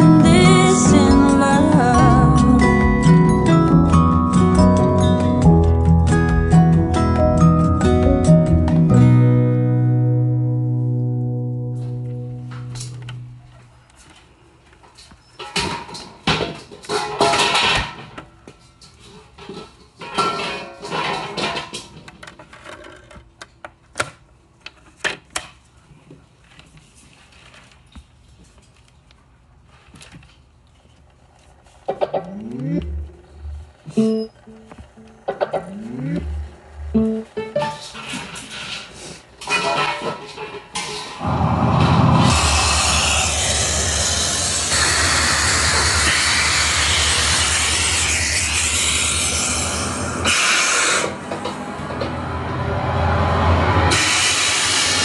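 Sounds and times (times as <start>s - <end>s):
low hum: 32.2s - 37.4s, 41.2s - 55.0s
steady rushing noise: 41.2s - 55.0s.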